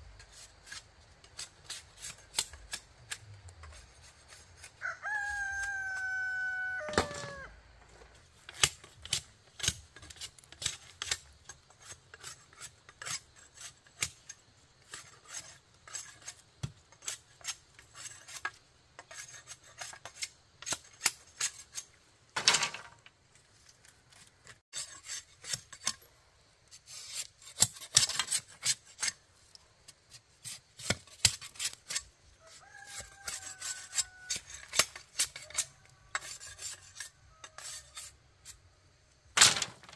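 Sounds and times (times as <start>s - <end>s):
scraping and knocking on bamboo: 0.0s - 39.9s
rooster crowing: 4.7s - 7.6s, 32.4s - 34.6s, 35.4s - 36.2s.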